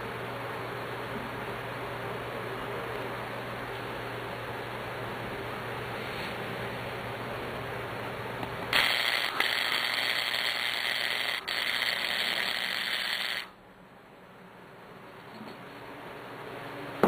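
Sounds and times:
welding arc crackling: 0:08.7 - 0:13.6.

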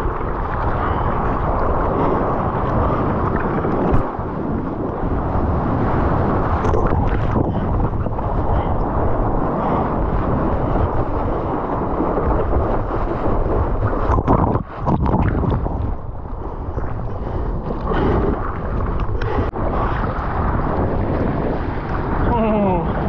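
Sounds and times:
ocean surf washing: 0:00.0 - 0:23.0
wind rumble on microphone: 0:00.0 - 0:23.0.

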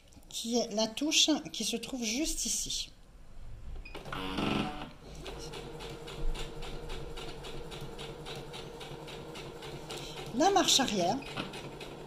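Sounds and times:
sewing machine motor hum: 0:04.0 - 0:12.0.

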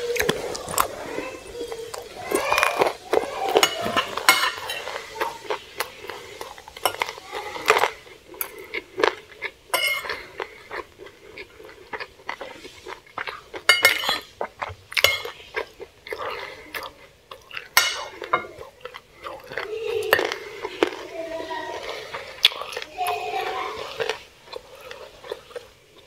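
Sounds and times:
cutlery scraping and clinking on plate: 0:02.3 - 0:10.9, 0:12.3 - 0:16.6, 0:17.5 - 0:21.0.

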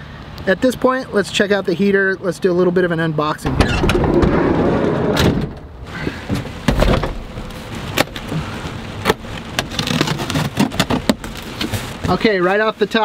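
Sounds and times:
rustling handling noise: 0:05.9 - 0:13.0.

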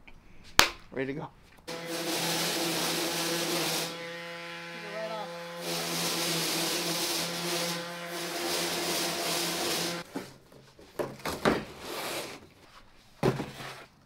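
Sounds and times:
electric sander running: 0:01.7 - 0:10.0.

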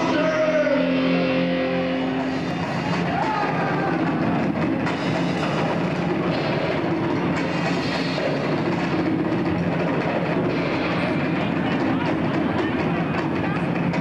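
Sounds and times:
live rock band playing loud: 0:00.0 - 0:07.6.

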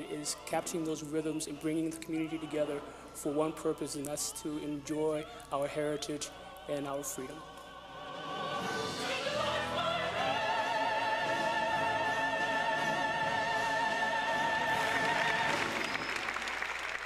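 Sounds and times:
applause: 0:14.8 - 0:17.0.

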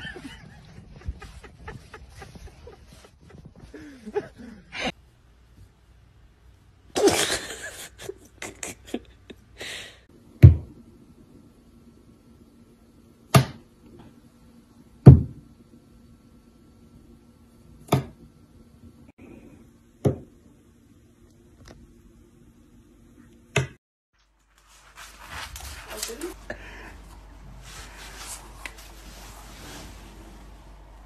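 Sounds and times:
scuffling rustling noise: 0:00.0 - 0:03.9, 0:24.3 - 0:31.0
low steady hum: 0:24.4 - 0:31.0.

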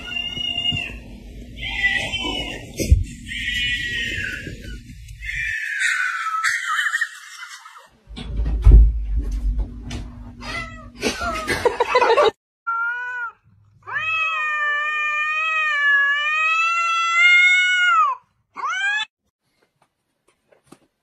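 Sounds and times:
cat yowling: 0:01.6 - 0:07.8, 0:12.7 - 0:19.1.

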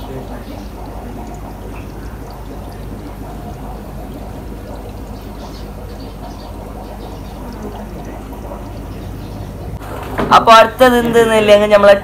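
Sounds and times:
aquarium water bubbling: 0:00.0 - 0:12.0
low steady hum: 0:00.0 - 0:12.0.

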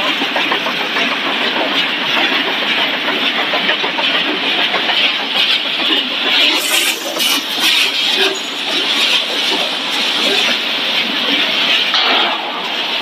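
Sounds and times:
sharp machine clanks: 0:00.0 - 0:12.7
production line machine noise: 0:00.0 - 0:13.0.

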